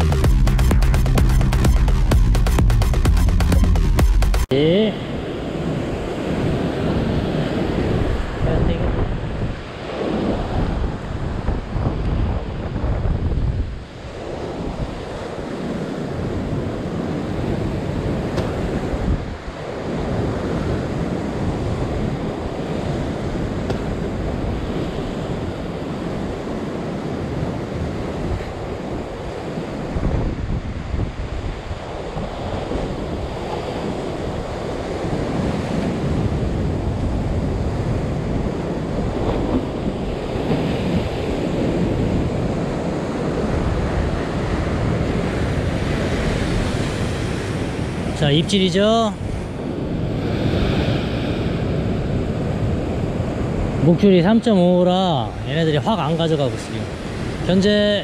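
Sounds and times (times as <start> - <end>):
wind buffeting microphone: 5.0 - 48.2, 49.2 - 53.9
surf breaking over rocks: 31.7 - 53.9.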